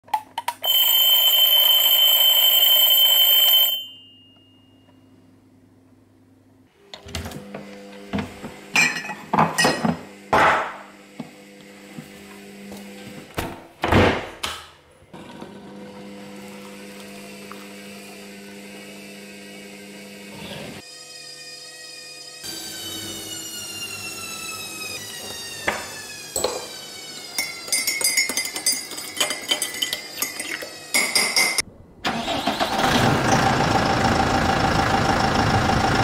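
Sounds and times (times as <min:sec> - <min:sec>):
alarm clock ringing: 0:00.6 - 0:04.7
kitchen clatter: 0:08.8 - 0:10.8, 0:27.4 - 0:31.6.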